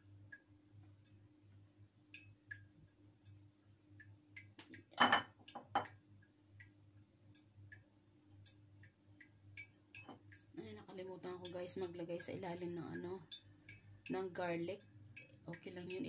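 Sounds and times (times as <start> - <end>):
faint ticking clicks: 0.0 - 16.0.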